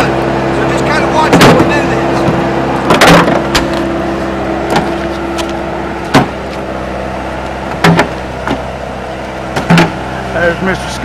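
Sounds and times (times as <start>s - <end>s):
loader engine running: 0.0s - 11.0s.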